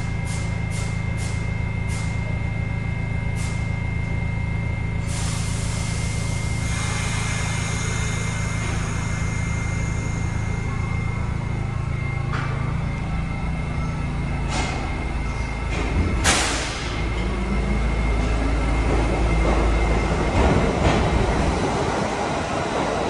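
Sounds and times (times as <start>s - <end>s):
train electrical hum: 0.0s - 23.0s
pneumatic air hiss: 5.0s - 10.5s.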